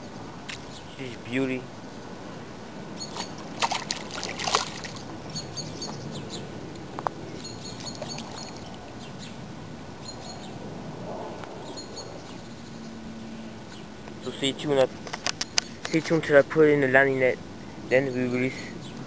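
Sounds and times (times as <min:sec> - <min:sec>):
high bird chirps: 0:03.0 - 0:03.4, 0:04.8 - 0:06.5, 0:07.3 - 0:09.4
fish splashing in water: 0:03.0 - 0:05.5, 0:07.6 - 0:08.9
water sloshing: 0:03.0 - 0:06.0, 0:07.4 - 0:09.0.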